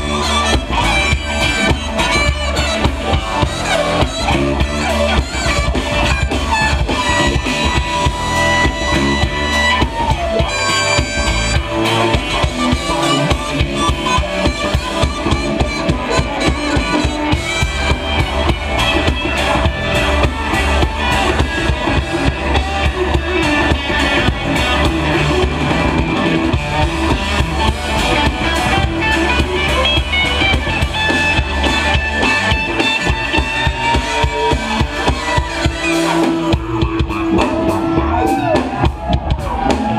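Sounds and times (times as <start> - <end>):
drum kit beat: 0.0 - 39.9
live funk band playing: 0.0 - 39.9.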